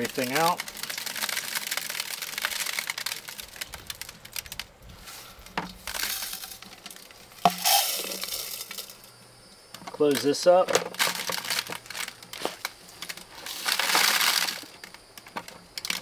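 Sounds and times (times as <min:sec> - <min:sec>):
metal pins clattering into basket: 0:05.4 - 0:09.0
metal pieces clinking: 0:05.8 - 0:09.1.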